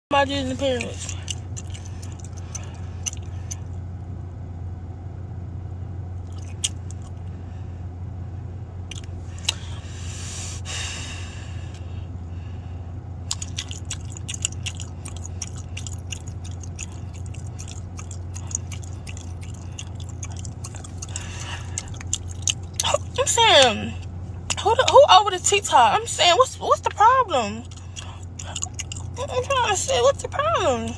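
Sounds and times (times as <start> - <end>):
steady low hum: 0.0 - 30.9
gum chewing: 0.5 - 3.8, 6.2 - 7.3, 8.9 - 10.0, 13.3 - 25.6, 26.8 - 30.9
wet smacking clicks: 0.8 - 3.7, 6.2 - 7.2, 8.9 - 9.7, 13.3 - 23.2, 27.6 - 29.4.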